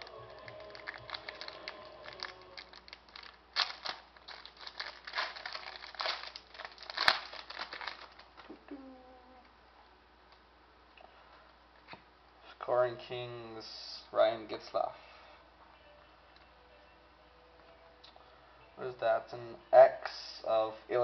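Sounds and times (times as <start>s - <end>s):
plastic wrapper crinkling: 0.0s - 8.6s.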